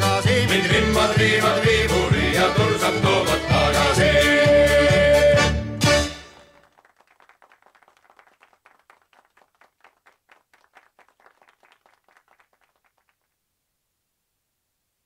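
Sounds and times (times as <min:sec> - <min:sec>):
faint hand clapping: 0:06.6 - 0:13.4.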